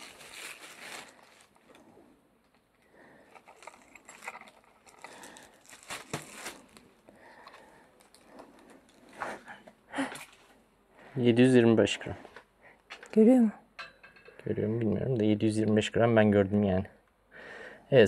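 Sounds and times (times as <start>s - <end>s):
berries crinkling and rustling: 0.0s - 10.6s.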